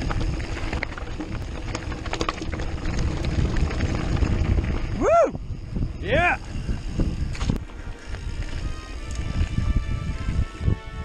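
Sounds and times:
tyre rumble on gravel: 0.0 - 4.9
wind buffeting camera: 0.0 - 11.0.

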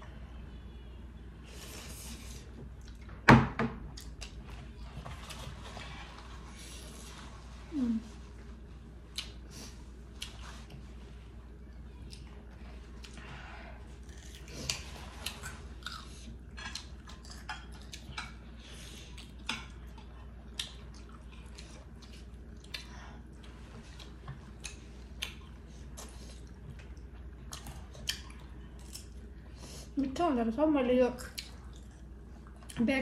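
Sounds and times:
chewing and lip smacks: 2.8 - 3.2, 9.1 - 9.5, 10.1 - 10.8, 14.0 - 29.3, 31.2 - 32.8.

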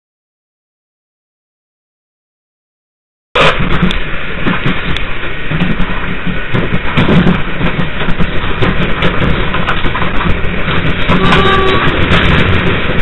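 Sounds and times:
clicks and clatters of track: 3.4 - 13.0
train wheels rumbling on rail: 3.4 - 13.0.

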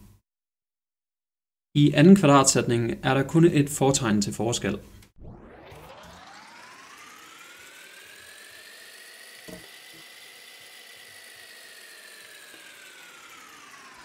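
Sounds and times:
whirring electronic hiss with rising tone: 5.2 - 14.0.

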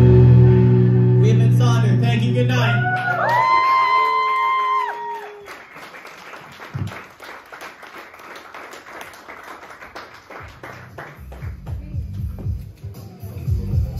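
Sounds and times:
electric guitar and bass chord: 0.0 - 2.7
audience applauding: 2.8 - 11.8.

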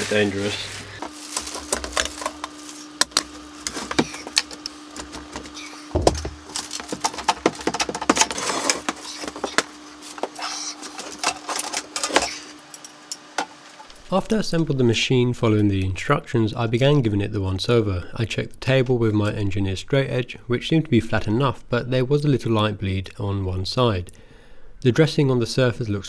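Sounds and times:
heavy thud: 5.9 - 6.4.

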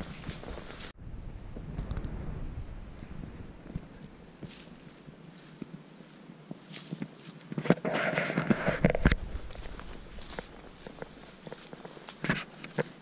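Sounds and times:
footsteps through dry leaves: 0.0 - 1.0, 3.8 - 13.0.

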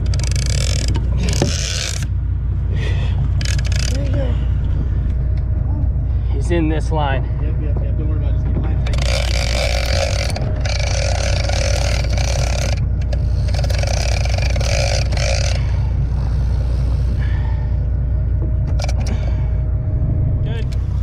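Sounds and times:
fishing reel spool spinning: 0.0 - 2.2, 3.2 - 4.2, 8.8 - 19.4
boat engine running: 0.0 - 21.0.

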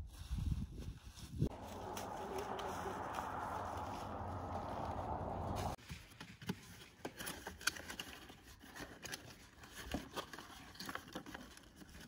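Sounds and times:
steady rushing noise: 1.5 - 5.8.

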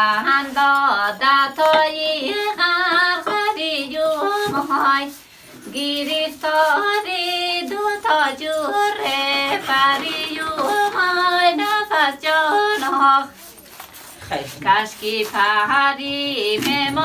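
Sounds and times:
woman singing: 0.0 - 13.5, 14.6 - 17.0.

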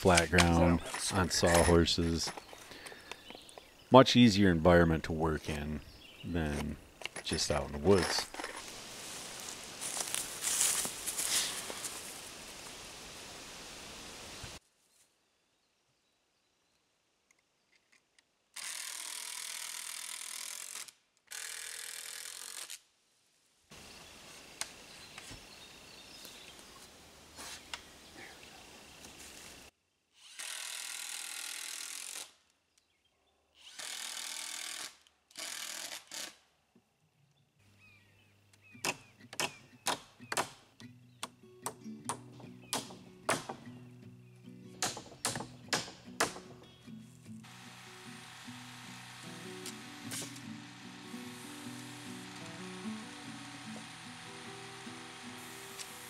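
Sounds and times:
hammer strikes: 41.2 - 43.7, 44.8 - 46.6
cordless drill running: 47.5 - 56.0.

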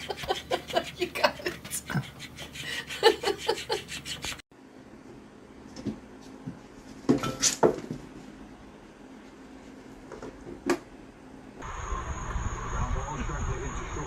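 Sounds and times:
person laughing: 0.0 - 4.2.

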